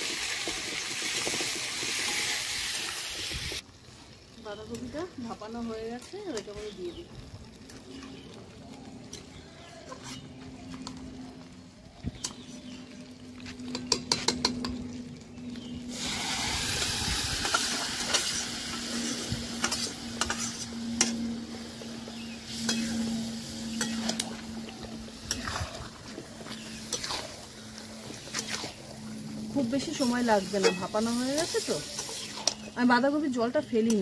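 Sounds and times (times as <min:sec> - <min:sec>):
loud sizzle in hot oil: 0:00.0 - 0:09.8, 0:13.8 - 0:34.0
spatula scraping and clinking pan: 0:19.6 - 0:21.3, 0:22.6 - 0:24.3, 0:30.5 - 0:31.2.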